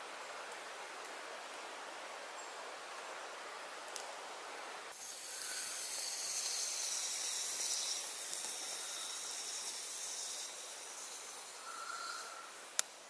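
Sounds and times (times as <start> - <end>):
wood stove fire hissing: 3.0 - 13.0.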